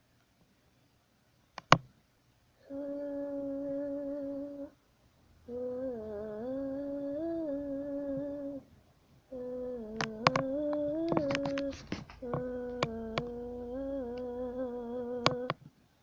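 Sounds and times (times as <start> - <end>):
person humming a tune: 2.6 - 4.8, 5.4 - 8.7, 9.3 - 15.6.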